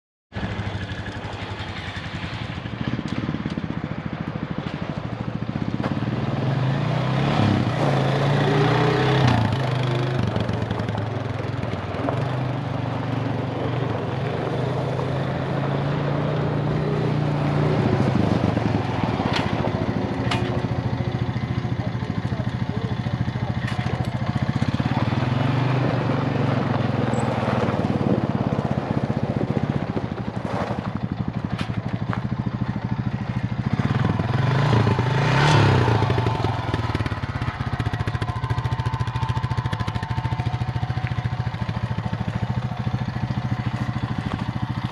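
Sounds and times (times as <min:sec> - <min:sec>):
quad engine revving: 0:05.6 - 0:44.9.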